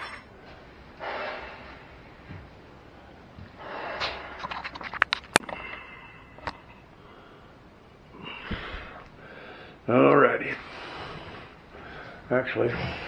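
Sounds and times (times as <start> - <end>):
metal tools clinking on steel: 0.0 - 0.3.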